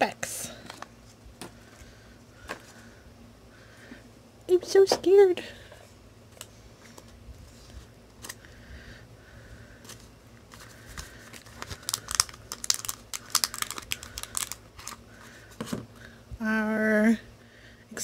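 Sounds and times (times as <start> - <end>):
plastic packaging crinkling: 10.4 - 15.0.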